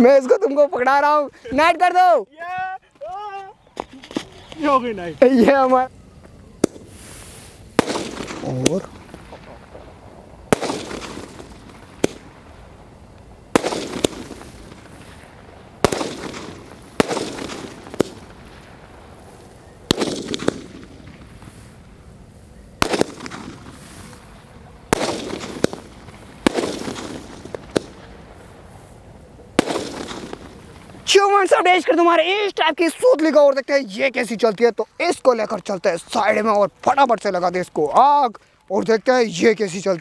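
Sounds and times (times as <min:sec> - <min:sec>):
firework bangs with hiss: 0:02.5 - 0:32.2.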